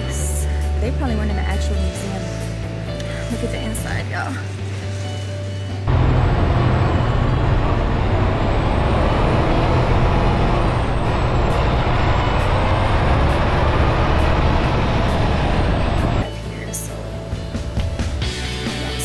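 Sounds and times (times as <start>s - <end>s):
deep truck rumble: 5.8s - 16.3s
wind and road noise: 5.9s - 16.3s.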